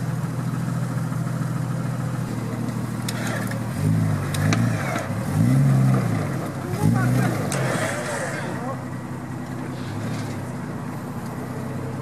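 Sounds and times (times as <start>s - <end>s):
engine revving: 2.2s - 12.0s.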